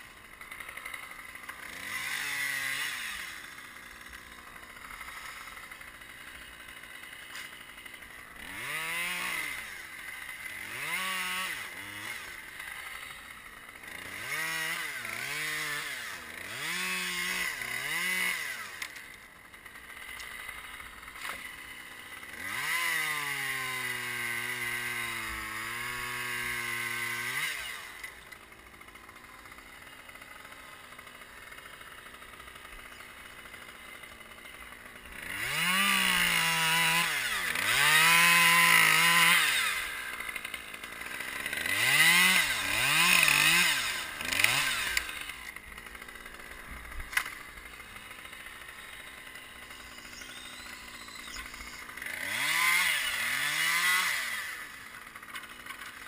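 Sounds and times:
chainsaw engine revving: 0.0 - 56.0.

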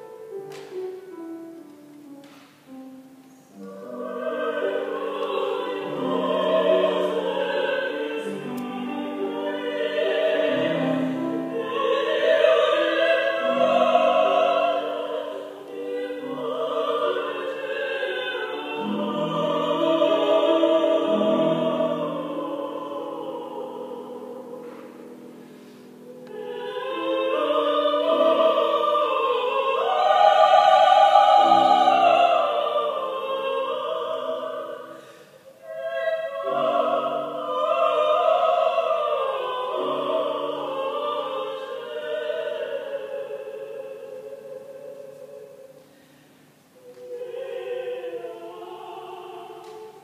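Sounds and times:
piano accompaniment: 0.0 - 33.2
women singing operatic duet: 3.6 - 45.9, 46.8 - 50.0.

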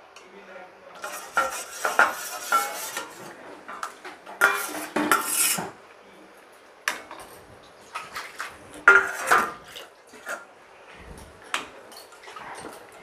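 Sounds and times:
metal spoon scraping a bowl: 1.0 - 3.3, 4.4 - 5.7, 8.3 - 9.5.

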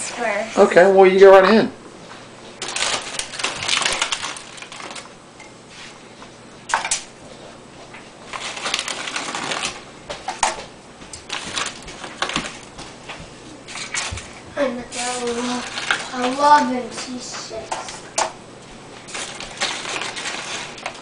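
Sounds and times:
chips rustling onto baking sheet: 2.5 - 5.1, 8.2 - 10.6, 11.2 - 12.9, 13.7 - 17.9, 19.0 - 21.0
chip bag crinkling: 2.5 - 5.2, 8.2 - 10.6, 11.2 - 12.8, 13.7 - 16.5, 19.0 - 21.0.

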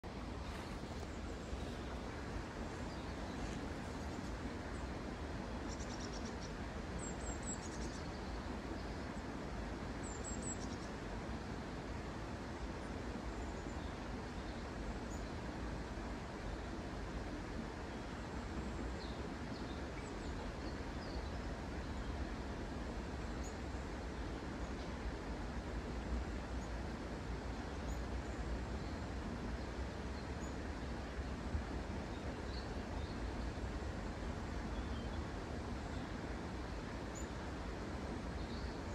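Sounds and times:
steady outdoor rushing noise: 0.0 - 5.7
low outdoor rumble: 0.0 - 38.9
small birds chirping: 0.4 - 5.0, 38.3 - 38.9
faint bird chirps: 5.7 - 9.0.

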